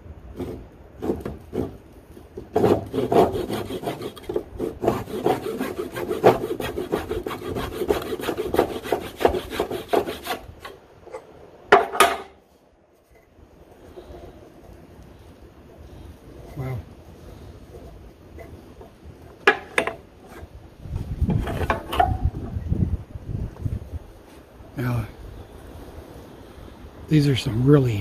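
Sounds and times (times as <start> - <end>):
hand saw cutting wood: 0.3 - 1.8, 2.4 - 10.8
saw scrape: 0.3 - 10.8, 17.3 - 20.6.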